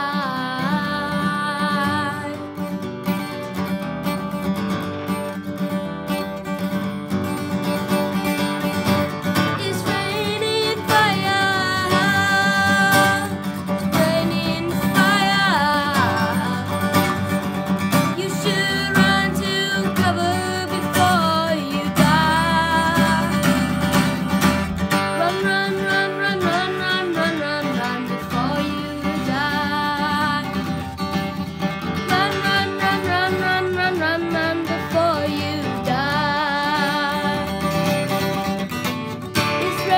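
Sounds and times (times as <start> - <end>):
boy singing: 0.0 - 2.5, 9.4 - 17.3, 17.9 - 24.2, 25.1 - 31.0, 32.0 - 38.0, 39.4 - 39.9
acoustic guitar strumming: 0.0 - 39.9.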